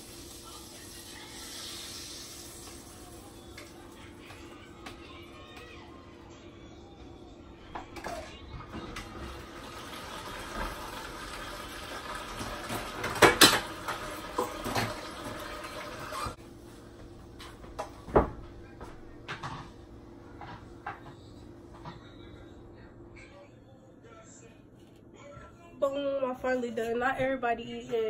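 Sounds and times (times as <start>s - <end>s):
dishes and cups clattering: 12.4s - 16.4s.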